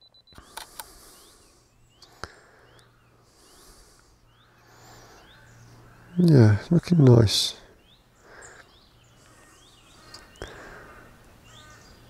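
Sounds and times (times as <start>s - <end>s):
bird chirps: 0.0s - 12.0s
camera shutter clicks: 0.3s - 1.0s.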